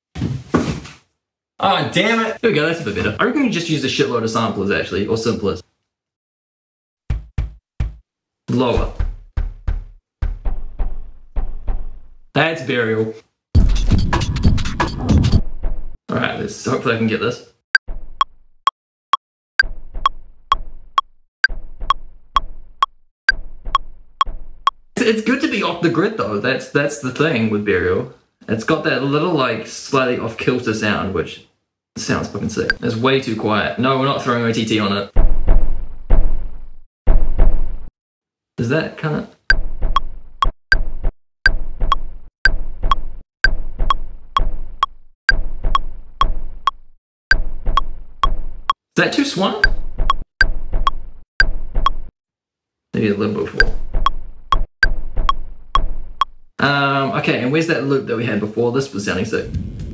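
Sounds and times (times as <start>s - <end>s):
drum sample thumps: 7.1s - 8.0s, 8.8s - 12.0s, 49.6s - 52.1s, 53.6s - 56.4s
metronome ticking: 49.6s - 50.2s, 55.8s - 56.4s
looped percussive chop beat: 53.6s - 56.4s.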